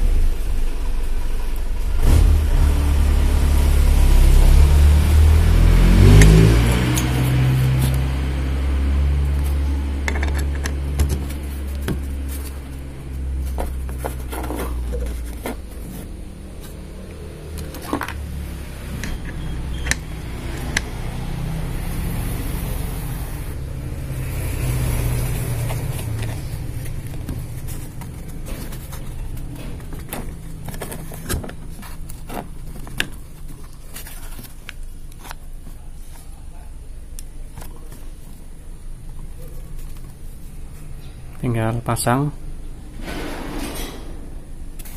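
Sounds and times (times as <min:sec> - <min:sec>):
vehicle engine rumbling: 0:00.0 - 0:44.9
metal parts clicking and clinking: 0:10.0 - 0:12.6, 0:18.9 - 0:20.9.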